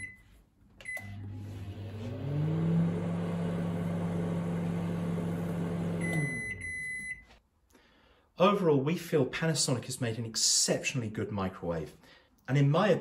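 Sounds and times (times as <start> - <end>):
microwave humming: 0.7 - 7.1.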